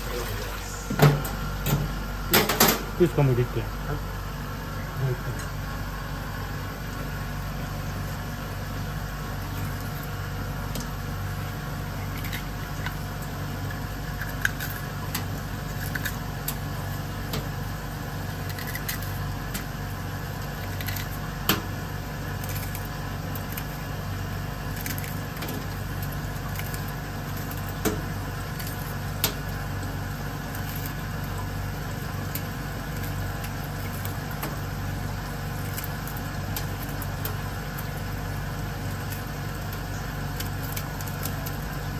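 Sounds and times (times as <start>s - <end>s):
low machine hum: 0.0s - 41.9s
scissors snipping shell: 18.4s - 19.7s.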